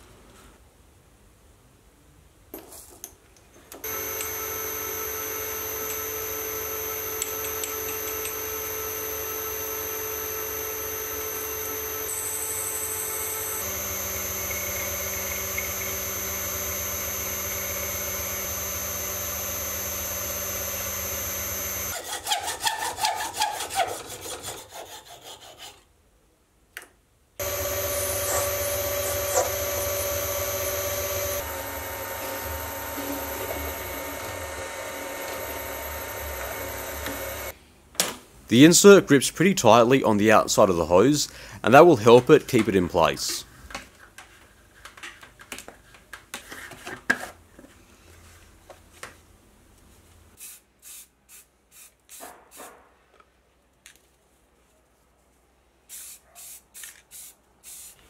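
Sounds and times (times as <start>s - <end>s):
lathe motor and cutting: 3.8s - 22.0s, 27.4s - 37.5s.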